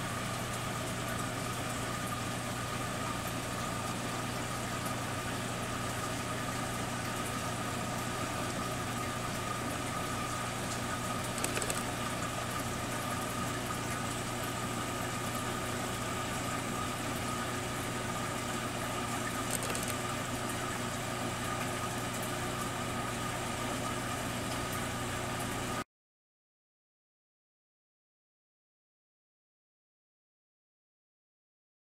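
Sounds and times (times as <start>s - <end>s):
air pump humming: 2.6s - 24.0s
faint ticks: 11.3s - 11.9s, 19.5s - 20.0s.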